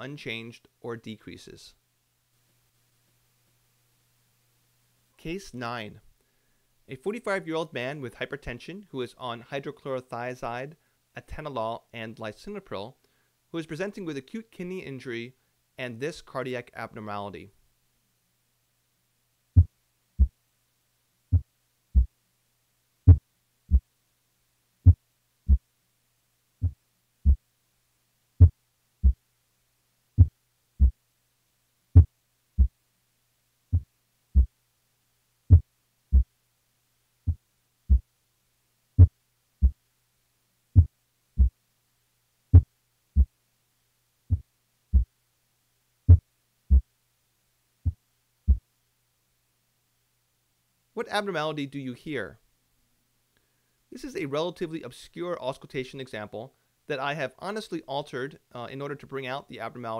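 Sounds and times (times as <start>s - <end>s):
slow heartbeat thumps: 19.6s - 20.4s, 21.3s - 22.1s, 23.1s - 23.9s, 24.8s - 25.6s, 26.6s - 27.4s, 28.4s - 29.2s, 30.2s - 31.0s, 32.0s - 32.8s, 33.7s - 34.5s, 35.5s - 36.3s, 37.3s - 38.1s, 39.0s - 39.8s, 40.8s - 41.6s, 42.5s - 43.3s, 44.3s - 45.1s, 46.1s - 46.9s, 47.8s - 48.6s.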